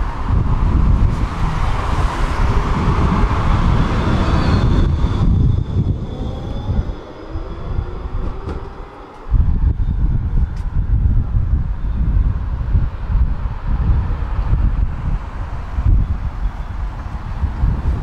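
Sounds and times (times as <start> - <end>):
tram wheels rumbling on rails: 0.0 - 18.0
faint whines rising in pitch: 0.5 - 13.3.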